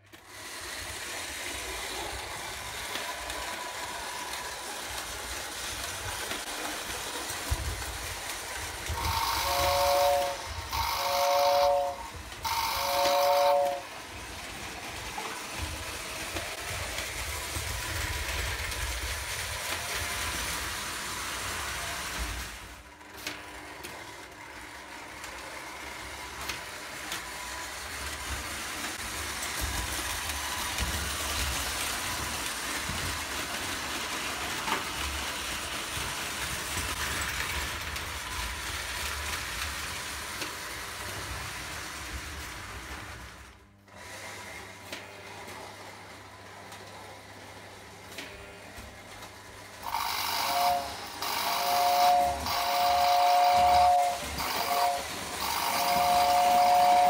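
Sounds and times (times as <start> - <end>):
toy train wheels rumbling on track: 0.0 - 57.0
toy train whistle blasts: 9.0 - 13.9, 49.8 - 57.0.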